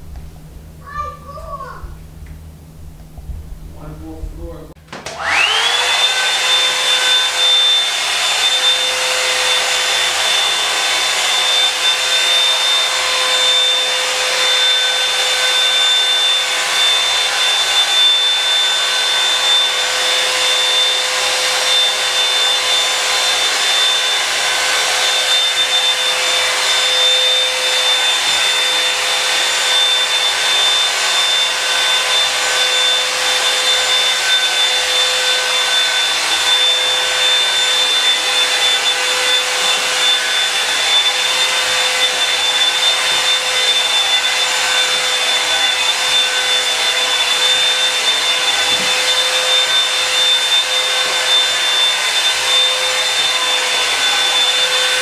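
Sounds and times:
blow dryer running: 0.0s - 55.0s.

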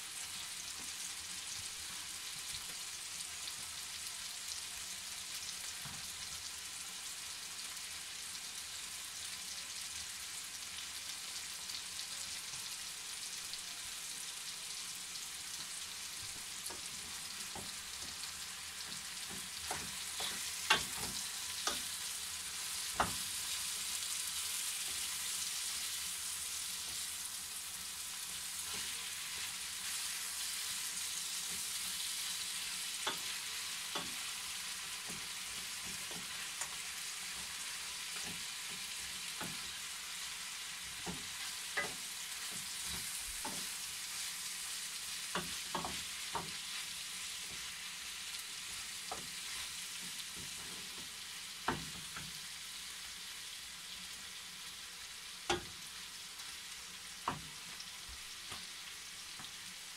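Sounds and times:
chicken and onions sizzling in pan: 0.0s - 59.9s
wooden spoon knocking on pan: 19.3s - 21.8s, 23.0s - 23.2s, 45.3s - 46.6s, 51.6s - 52.4s, 57.2s - 57.6s.

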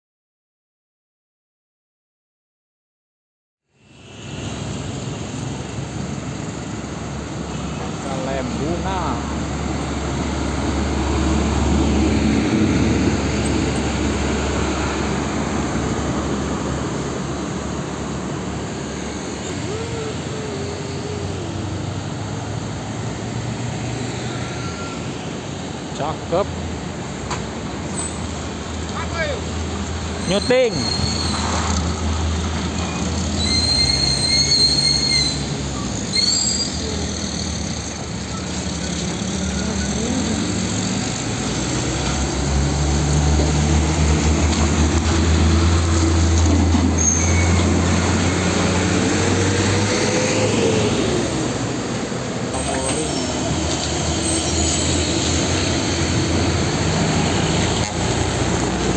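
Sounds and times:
heavy diesel trucks passing: 3.8s - 58.9s
high-pitched brake squeal: 18.6s - 21.9s, 24.0s - 25.4s, 27.9s - 28.3s, 30.2s - 31.8s, 32.8s - 40.2s, 46.7s - 49.2s, 52.6s - 56.6s.

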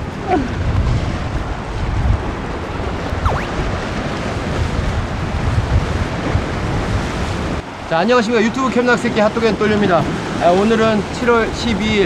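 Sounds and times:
wind buffeting microphone: 0.0s - 7.8s
waves breaking on rocky shore: 0.0s - 12.0s.

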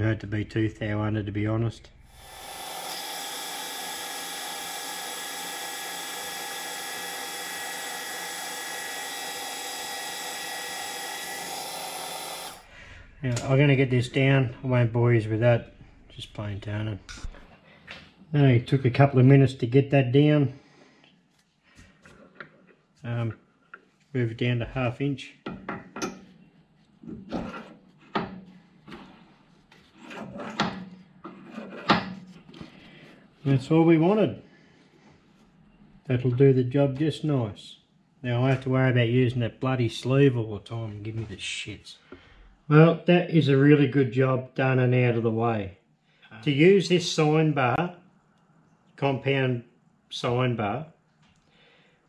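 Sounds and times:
metal lathe whining: 2.1s - 12.6s.

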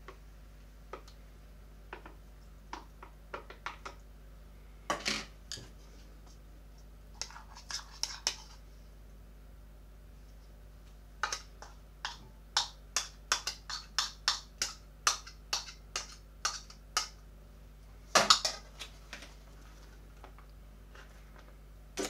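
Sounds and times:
spoon scraping and tapping bowl: 7.2s - 8.6s, 11.2s - 17.2s.

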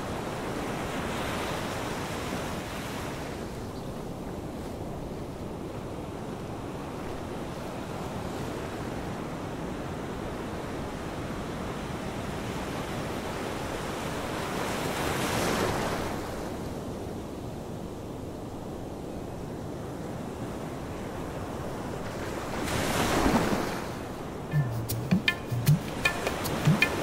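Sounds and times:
ocean surf washing ashore: 19.8s - 27.0s.

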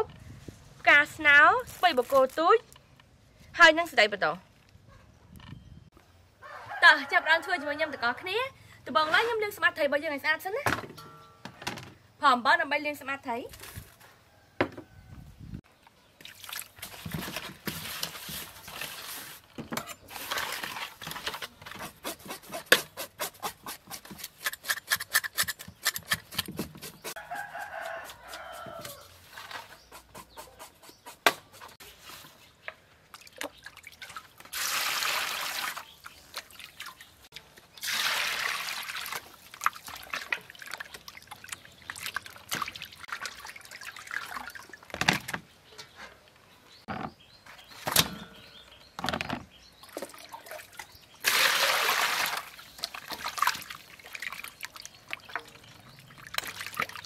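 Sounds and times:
rooster crowing: 6.4s - 8.2s, 27.2s - 29.2s
fish washed in metal bowl: 16.2s - 24.9s, 33.1s - 45.2s, 49.8s - 57.0s.

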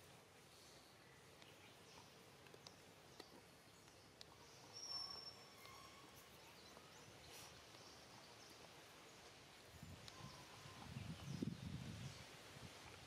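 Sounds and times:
faint ticks: 1.3s - 6.0s.

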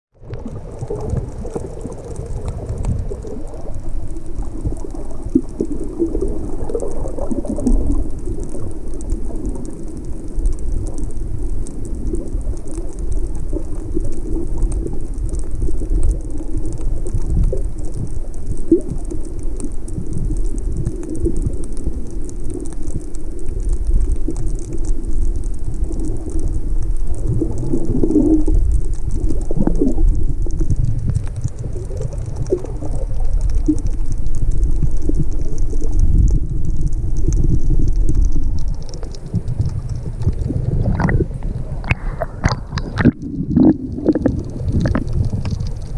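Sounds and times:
fine steady crackle: 0.1s - 45.9s
muffled underwater rumbling and sloshing: 0.1s - 45.9s.

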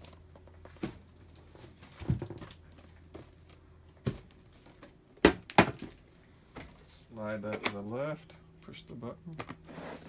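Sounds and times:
objects being set down: 0.7s - 3.3s.

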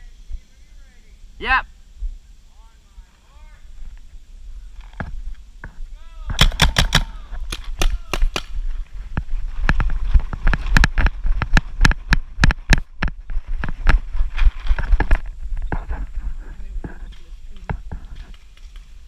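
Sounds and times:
paintball markers firing: 6.3s - 8.6s.

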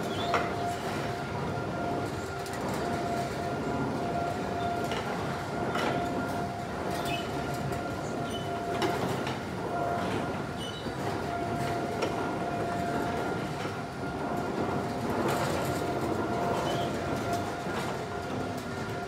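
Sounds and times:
carousel machinery rumbling: 0.0s - 19.0s.

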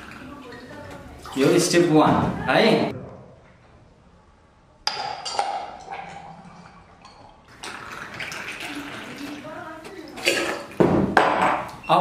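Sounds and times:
liquid pouring into metal cup: 5.6s - 10.8s.

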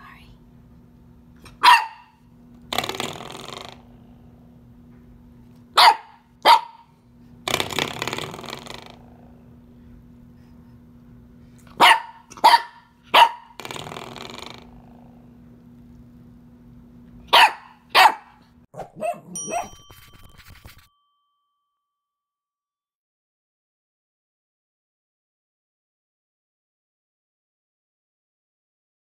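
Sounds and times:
puppy barking in sharp yaps: 1.5s - 2.2s, 5.8s - 6.9s, 11.8s - 13.6s, 17.3s - 19.8s.

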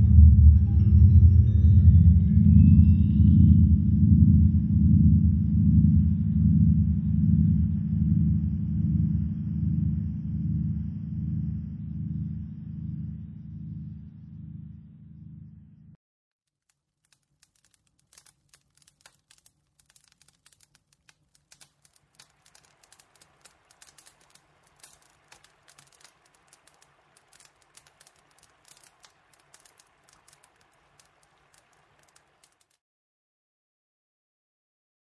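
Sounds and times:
low steady hum: 0.0s - 16.0s
faint crackling clicks: 16.5s - 32.8s.

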